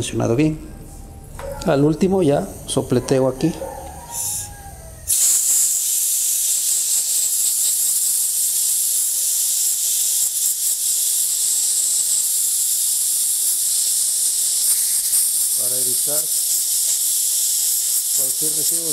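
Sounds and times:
compressed air blow gun hissing: 0:05.1 - 0:18.9.

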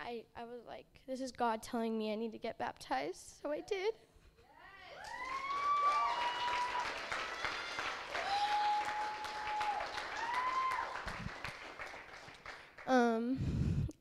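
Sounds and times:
high-pitched whoops: 0:04.6 - 0:11.2
crowd applauding and cheering: 0:04.9 - 0:12.9.

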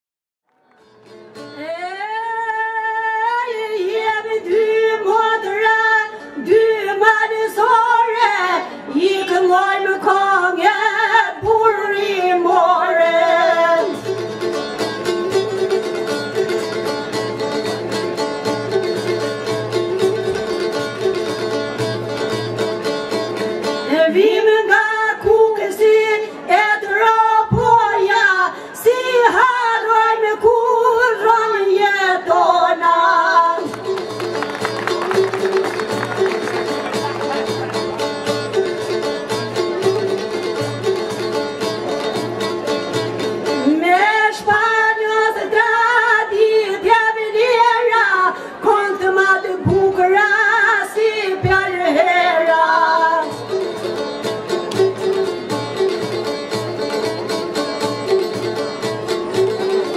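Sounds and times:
plucked long-necked lute: 0:00.5 - 0:59.9
woman singing folk song: 0:01.5 - 0:14.4, 0:23.8 - 0:34.2, 0:43.6 - 0:53.8.

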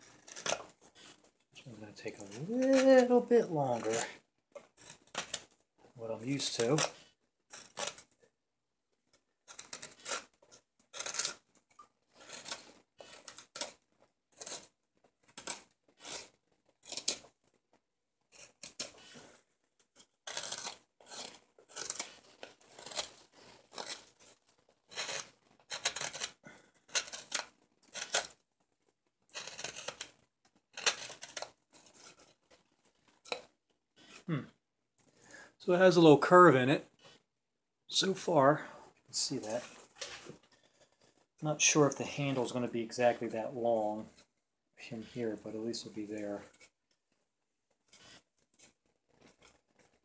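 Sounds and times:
knife shaving wood: 0:00.0 - 0:08.3, 0:09.1 - 0:28.4, 0:29.3 - 0:34.5, 0:39.1 - 0:41.3, 0:47.7 - 0:50.0
crisp slicing strokes: 0:20.0 - 0:28.3.

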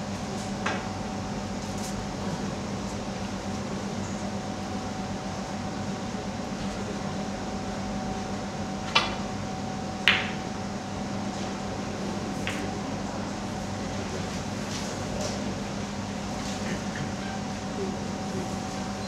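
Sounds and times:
steady hum: 0:00.0 - 0:19.0
snooker balls clicking: 0:10.0 - 0:10.4.

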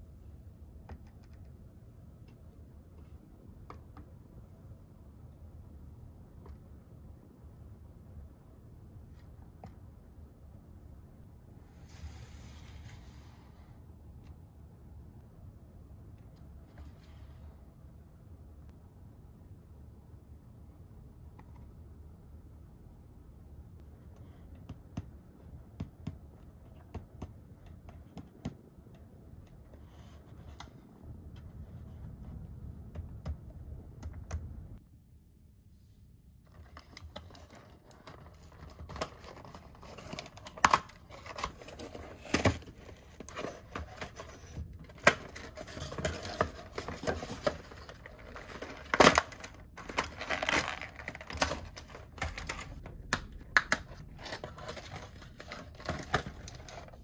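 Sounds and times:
packaging crinkling and tearing: 0:44.9 - 0:52.8.

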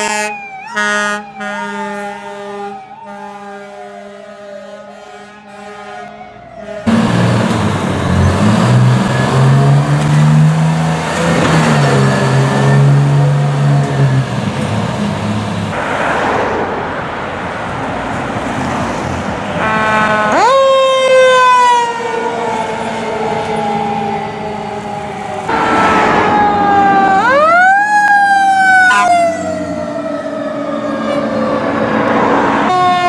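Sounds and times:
low blaring horn tones: 0:00.0 - 0:09.8, 0:19.5 - 0:22.6, 0:25.3 - 0:30.3, 0:32.5 - 0:33.0
engine and road noise: 0:00.0 - 0:33.0
siren rising and winding down: 0:20.3 - 0:33.0.

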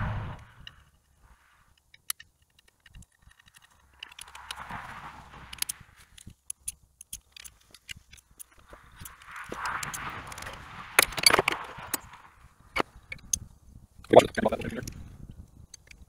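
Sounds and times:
hand tools clicking and clinking: 0:05.5 - 0:09.2.

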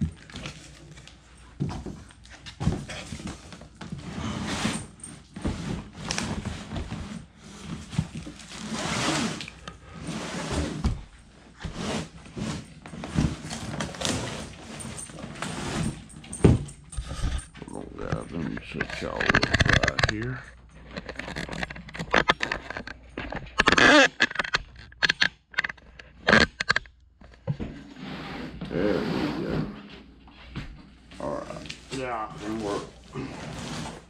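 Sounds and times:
cardboard flaps rustling and scraping: 0:00.0 - 0:20.2, 0:31.1 - 0:34.0.

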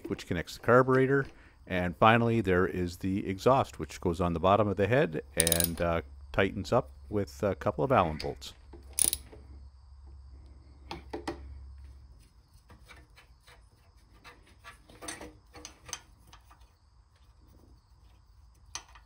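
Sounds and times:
metallic clicks and taps: 0:05.4 - 0:05.8, 0:08.2 - 0:09.3.

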